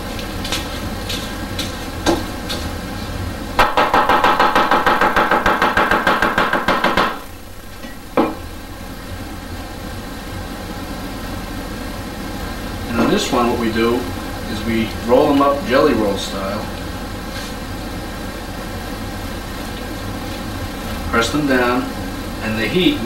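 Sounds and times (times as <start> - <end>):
blade knocking on board: 3.6 - 7.2
cleaver chopping on wooden board: 3.6 - 7.2.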